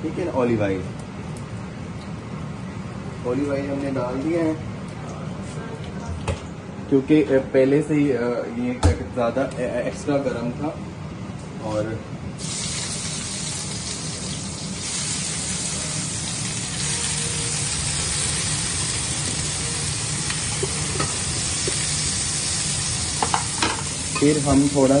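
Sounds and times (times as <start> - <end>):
vegetables sizzling in hot oil: 12.4 - 25.0.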